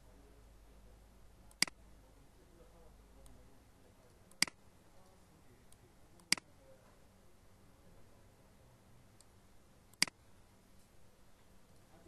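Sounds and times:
computer mouse clicking: 1.5 - 1.8, 6.2 - 6.5, 9.9 - 10.2.

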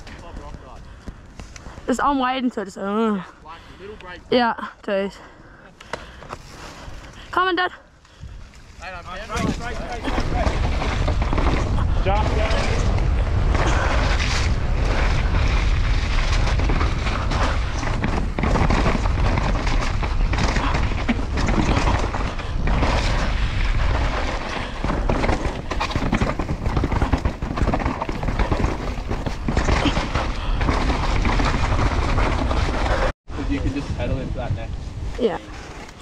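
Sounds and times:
wind buffeting microphone: 8.1 - 36.0
bike clattering over rocks: 9.2 - 14.3, 14.9 - 33.1.

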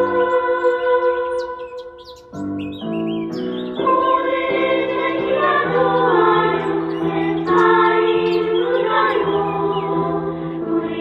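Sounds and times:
children's choir singing: 0.0 - 2.1, 3.4 - 11.0
high bird chirps: 0.0 - 10.2.

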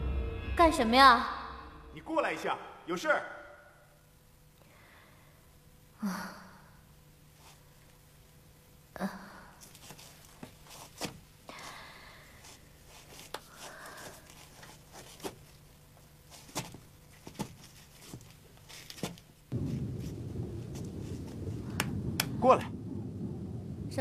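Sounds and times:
rustling: 9.6 - 11.8, 12.4 - 21.7
low outdoor rumble: 19.5 - 24.0.

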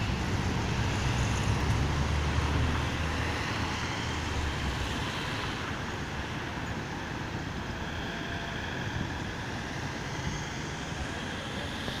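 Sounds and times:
cars driving past: 0.0 - 6.3.

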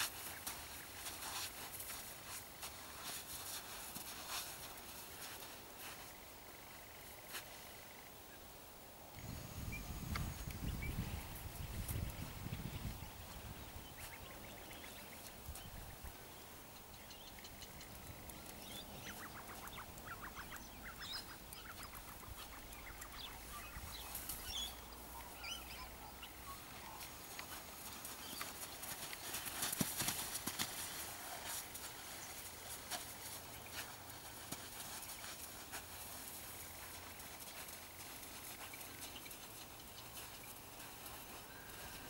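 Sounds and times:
horse moving on sand: 0.0 - 6.7, 17.1 - 42.0.

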